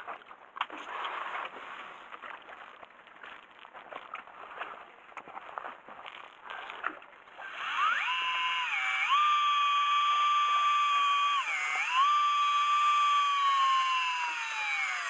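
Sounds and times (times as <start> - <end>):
fishing reel motor whining: 7.4 - 15.0.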